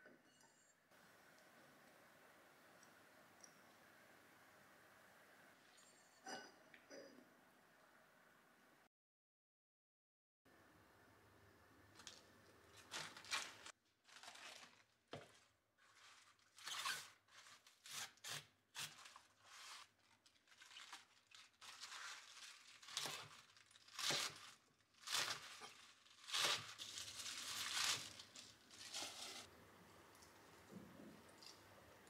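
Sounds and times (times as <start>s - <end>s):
leaves rustling and tearing: 12.0s - 29.5s.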